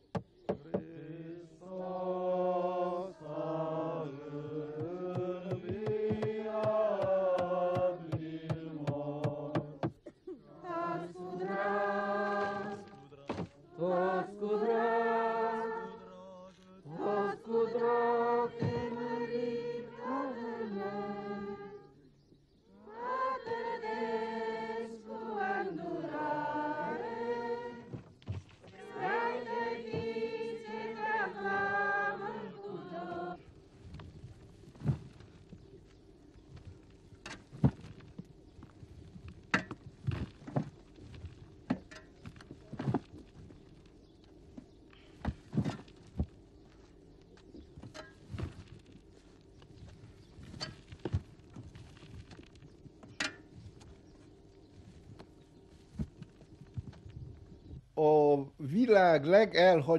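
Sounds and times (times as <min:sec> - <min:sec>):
voices singing a slow chant: 0:00.0 - 0:34.0
shovelled earth thudding: 0:03.4 - 0:10.1, 0:33.7 - 0:35.9, 0:36.5 - 0:43.8, 0:45.0 - 0:54.1.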